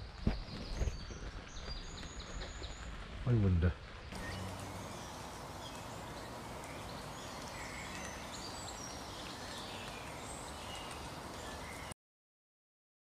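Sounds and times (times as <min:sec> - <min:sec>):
songbirds chirping: 0:00.0 - 0:12.0
steady background hiss: 0:02.8 - 0:11.9.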